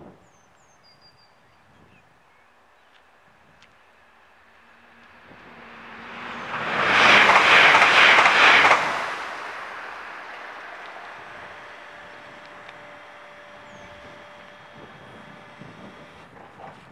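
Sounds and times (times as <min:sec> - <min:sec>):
passenger train passing: 0:03.9 - 0:16.9.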